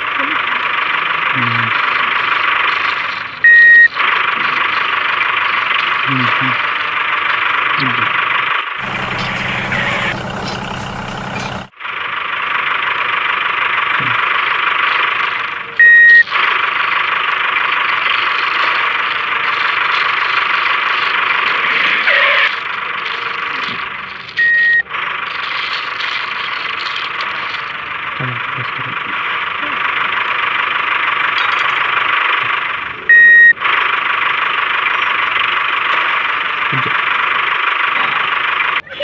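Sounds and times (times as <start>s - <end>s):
small electric motors whining: 8.8s - 11.7s, 16.1s - 28.9s.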